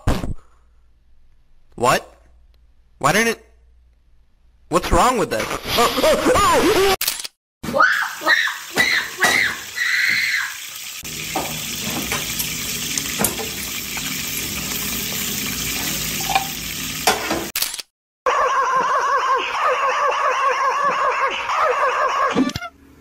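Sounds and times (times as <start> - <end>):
food sizzling in a frying pan: 8.2 - 17.5.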